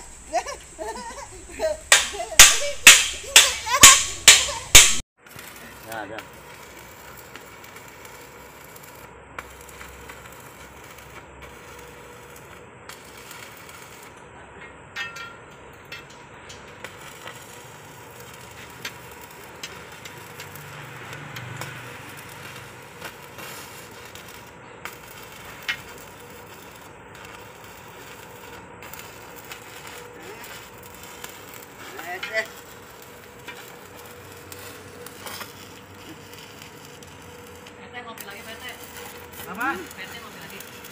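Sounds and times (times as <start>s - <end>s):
arc welding crackling hiss: 0.0s - 40.9s
welding pops: 1.8s - 14.3s, 15.0s - 40.9s.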